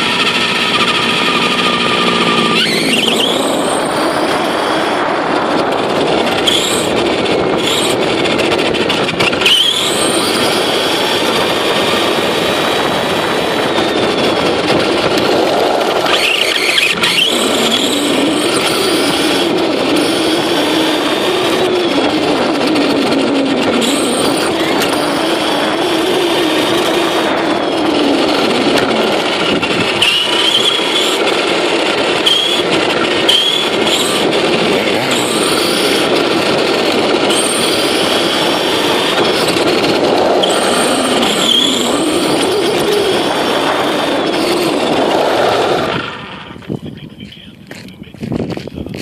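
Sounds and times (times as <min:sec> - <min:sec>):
rc truck motor drone and whines: 0:00.0 - 0:46.8
tyre and road noise: 0:00.0 - 0:49.0.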